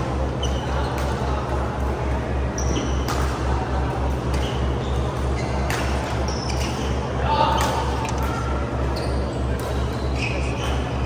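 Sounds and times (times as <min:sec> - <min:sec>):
shoes squeaking on court: 0:00.3 - 0:01.2, 0:02.5 - 0:03.2, 0:04.2 - 0:11.0
racket hitting shuttlecock: 0:03.0 - 0:03.5, 0:05.6 - 0:06.9.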